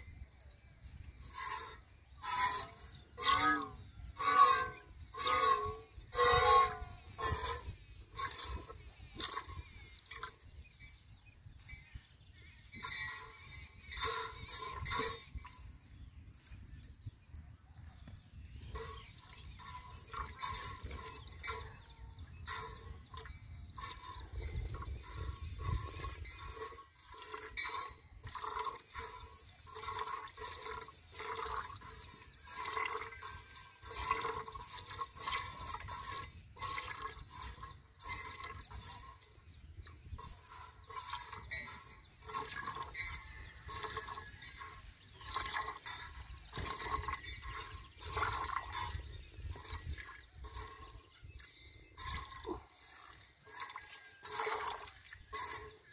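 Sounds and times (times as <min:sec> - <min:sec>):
milk squirting into a pail: 0:01.0 - 0:10.4, 0:22.4 - 0:51.1, 0:52.0 - 0:55.9.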